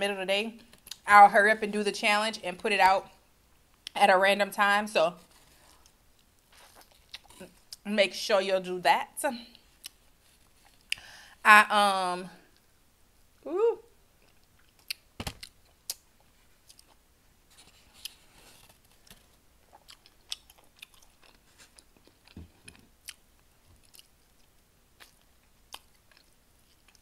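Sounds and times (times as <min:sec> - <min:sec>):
wet chewing and mouth clicks: 0:05.7 - 0:07.8, 0:14.2 - 0:17.0, 0:19.6 - 0:27.0
person humming mm: 0:13.4 - 0:13.9.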